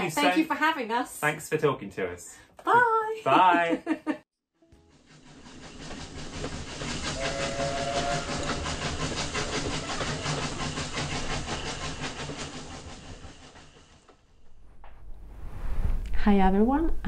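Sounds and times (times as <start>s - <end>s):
steam locomotive chuffing: 4.8s - 14.6s
steam whistle blast: 7.0s - 10.6s.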